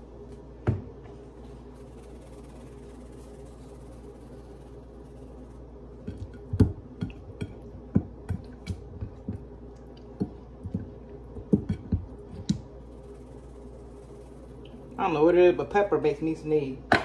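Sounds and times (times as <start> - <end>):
spice shaker taps and clicks: 6.0 - 9.5.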